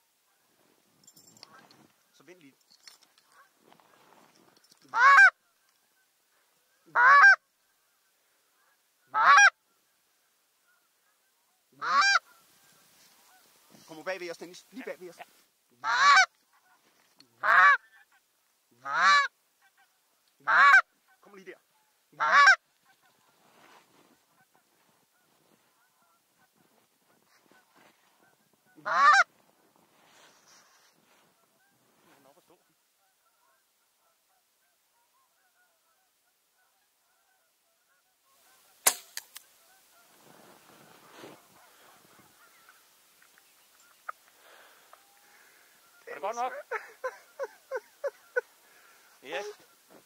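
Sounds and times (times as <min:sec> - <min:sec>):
faint goose calls: 0:00.0 - 0:04.2, 0:04.8 - 0:50.0
goose honks: 0:04.9 - 0:05.4, 0:06.8 - 0:07.4, 0:08.6 - 0:09.6, 0:10.7 - 0:13.9, 0:15.0 - 0:16.8, 0:17.4 - 0:23.4, 0:27.5 - 0:29.3, 0:41.3 - 0:42.9.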